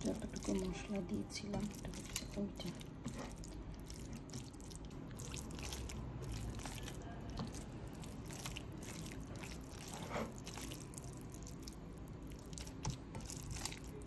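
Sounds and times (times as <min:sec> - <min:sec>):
hand squelching wet food: 0:00.0 - 0:14.0.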